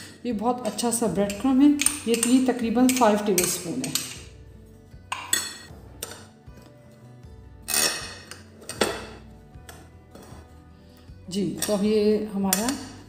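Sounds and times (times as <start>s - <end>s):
glassware clinking and knocking: 1.3s - 4.3s, 5.1s - 6.3s, 7.7s - 10.3s.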